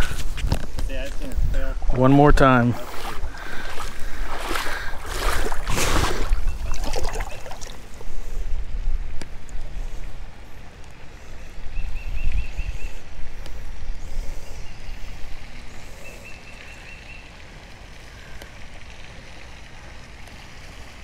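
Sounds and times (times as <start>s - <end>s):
running water: 0.0s - 8.5s, 14.8s - 21.0s
water swirling around hand and legs: 2.5s - 8.3s.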